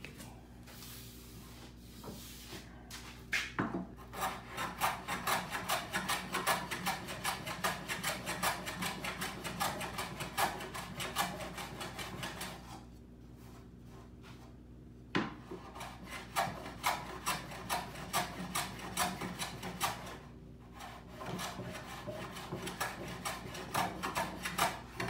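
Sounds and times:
hand plane strokes on wood: 0:04.0 - 0:12.8, 0:15.3 - 0:25.0.

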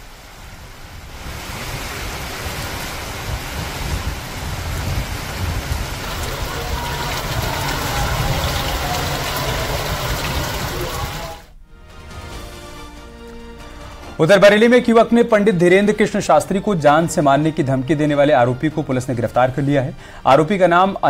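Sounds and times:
heavy rain pouring: 0:00.0 - 0:11.6.

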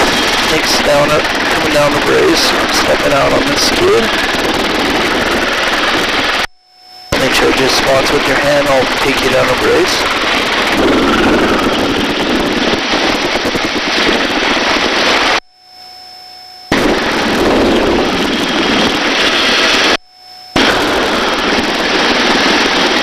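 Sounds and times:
helicopter rotor chop: 0:00.0 - 0:06.5, 0:07.1 - 0:15.4, 0:16.7 - 0:20.0, 0:20.6 - 0:23.0
helicopter turbine noise: 0:00.0 - 0:23.0
faint electronic hum: 0:06.4 - 0:12.7, 0:13.6 - 0:23.0.

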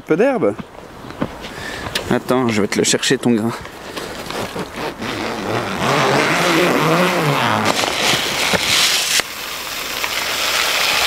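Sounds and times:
rustling handling noise: 0:03.5 - 0:09.2.

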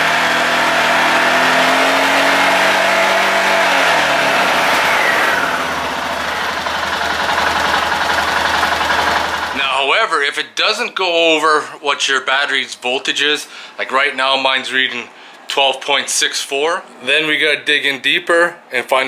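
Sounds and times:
atv engine at high revs: 0:00.0 - 0:09.6.

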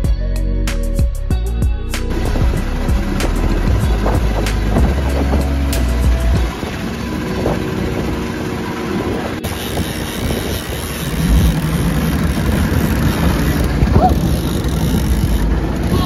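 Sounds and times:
wind: 0:00.0 - 0:16.0
boat engine rumbling: 0:01.4 - 0:16.0
water noise: 0:02.0 - 0:16.0.

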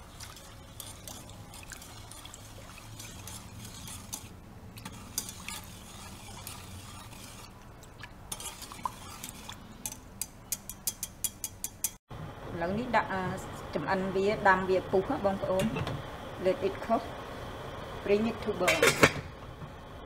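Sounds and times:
whisk clinking against pot: 0:00.0 - 0:07.5, 0:08.3 - 0:12.0
liquid swishing: 0:00.0 - 0:10.0.

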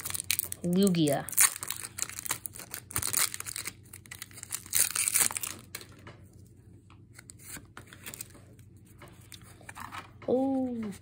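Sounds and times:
foil wrapper crinkling and tearing: 0:00.0 - 0:05.9
cards rustling: 0:00.0 - 0:06.0, 0:07.0 - 0:10.0.

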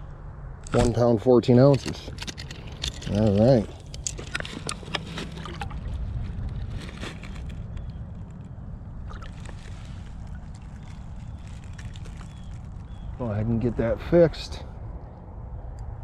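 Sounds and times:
steady low rumble: 0:00.0 - 0:16.0
small water splashes: 0:04.6 - 0:06.0, 0:09.0 - 0:13.1.

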